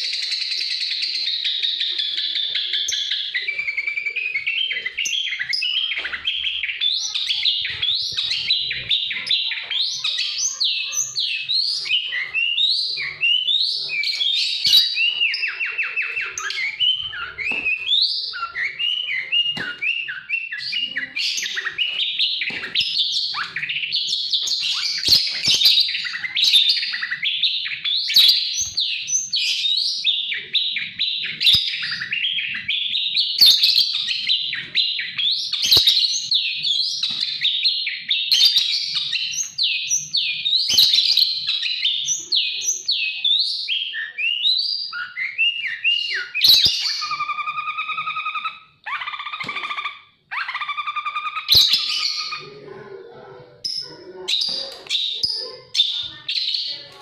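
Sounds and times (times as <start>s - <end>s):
songbird singing: 0.0s - 57.0s.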